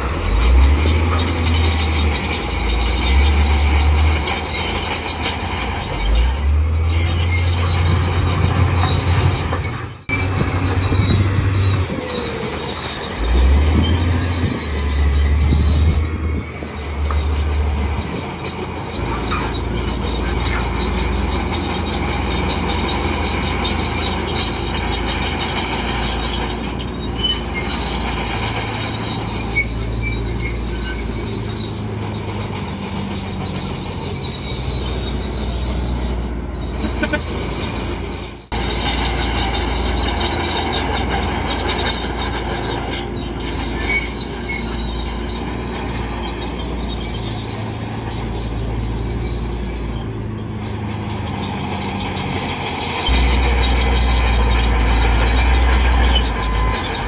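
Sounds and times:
diesel machinery engine running: 0:00.0 - 0:57.0
metallic squealing and clanking: 0:00.0 - 0:57.0.

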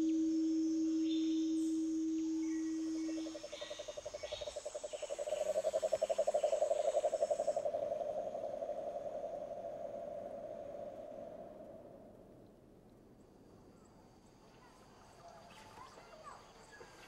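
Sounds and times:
high insect buzz: 0:00.0 - 0:10.9
frog trilling: 0:02.4 - 0:11.1.

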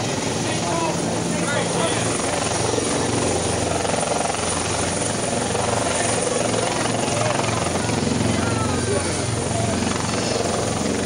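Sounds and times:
helicopter turbine and rotor rushing: 0:00.0 - 0:11.0.

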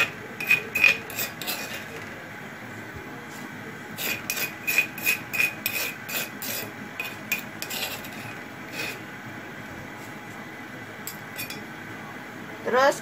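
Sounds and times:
spoon scraping a pot: 0:00.0 - 0:02.2, 0:04.0 - 0:09.1, 0:11.0 - 0:11.7.

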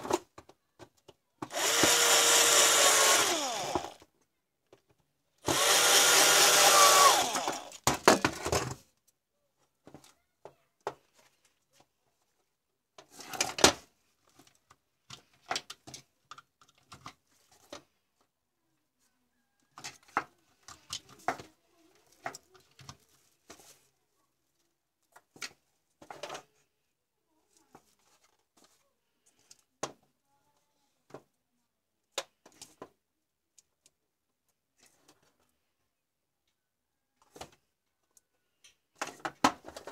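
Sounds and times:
plastic parts clicking and knocking: 0:00.0 - 0:09.1, 0:12.9 - 0:18.3, 0:19.7 - 0:23.8, 0:25.0 - 0:26.6, 0:37.2 - 0:39.9
power drill boring through plastic: 0:01.4 - 0:04.1, 0:05.4 - 0:07.8.

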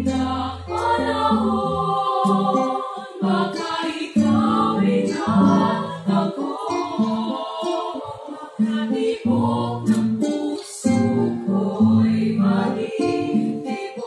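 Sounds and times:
plucked acoustic guitar: 0:00.0 - 0:14.0
women's vocal ensemble singing: 0:00.0 - 0:14.0.

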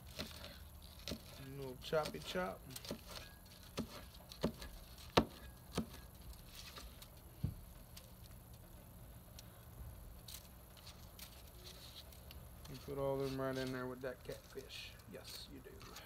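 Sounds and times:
cleaver chopping: 0:00.0 - 0:06.1.

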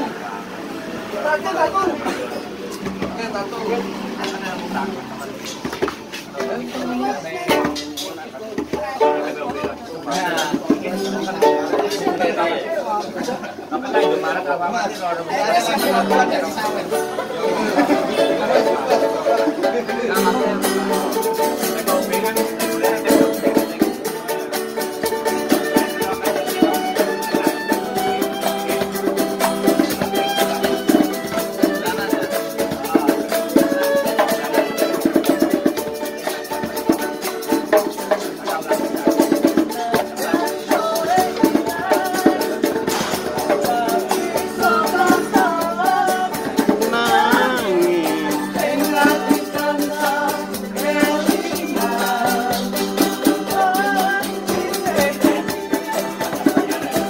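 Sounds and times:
percussion rhythm: 0:01.1 - 0:57.0
person singing: 0:39.1 - 0:57.0
sustained instrumental notes: 0:42.2 - 0:57.0.

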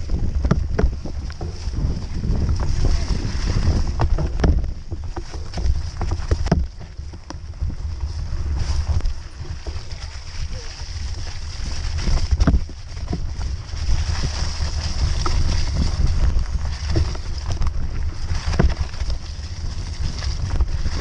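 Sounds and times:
bike tyre and chassis rattle: 0:00.0 - 0:21.0
wind rumble on microphone: 0:00.0 - 0:21.0
sharp knocks over bumps: 0:00.1 - 0:07.8, 0:08.9 - 0:21.0.

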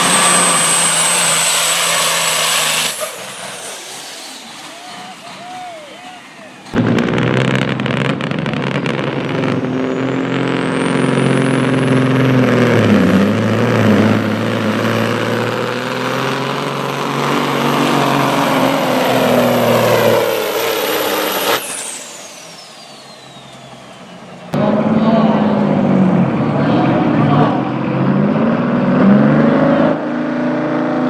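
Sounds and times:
turbocharger whistle: 0:00.0 - 0:26.1
truck diesel engine at full throttle: 0:00.0 - 0:31.0.

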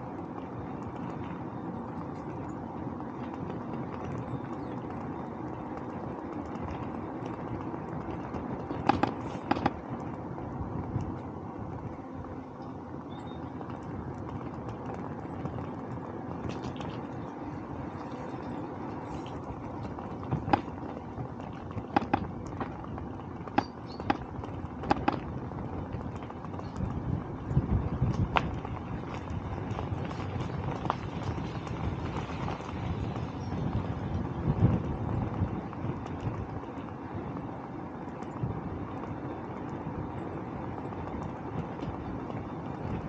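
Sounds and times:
wind and bicycle tyre noise: 0:00.0 - 0:43.0.

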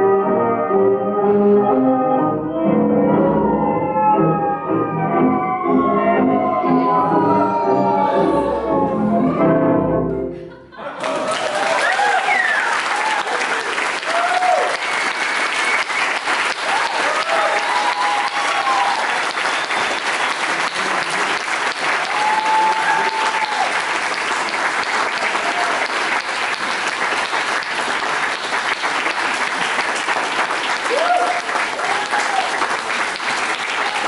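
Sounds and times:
calls and whoops: 0:03.6 - 0:09.6, 0:11.0 - 0:14.9, 0:16.7 - 0:19.9, 0:22.0 - 0:23.8, 0:30.9 - 0:32.5
audience applauding: 0:10.7 - 0:34.0.

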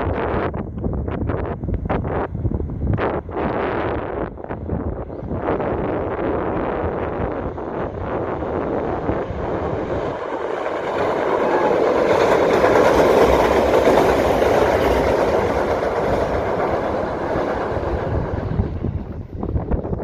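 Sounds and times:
train rumbling over steel bridge: 0:00.0 - 0:20.0
wheels clickety-clack: 0:08.8 - 0:19.2.

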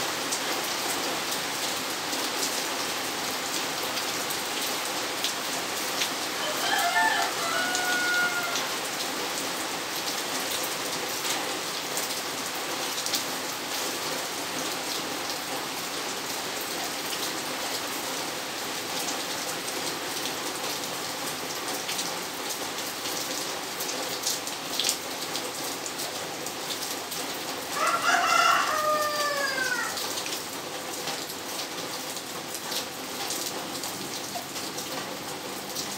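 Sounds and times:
steady rain falling: 0:00.0 - 0:35.9
rooster crowing: 0:06.4 - 0:08.8, 0:27.7 - 0:30.1.

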